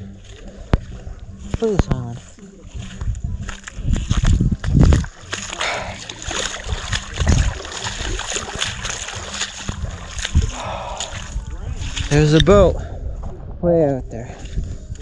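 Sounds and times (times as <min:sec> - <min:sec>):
seawater lapping at shore: 0:00.0 - 0:13.3.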